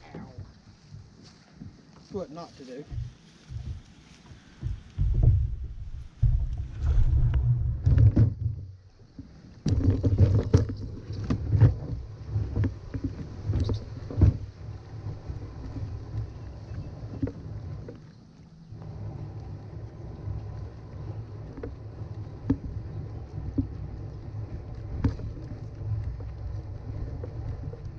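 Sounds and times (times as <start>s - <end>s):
kayak dragged across grass: 0.0s - 27.9s
hull knocks: 4.6s - 8.8s, 22.3s - 27.9s.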